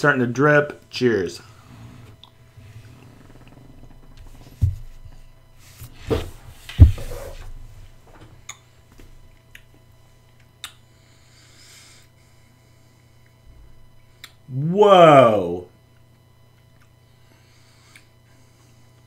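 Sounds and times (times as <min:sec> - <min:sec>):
dull thumps at a desk: 0:06.1 - 0:07.4.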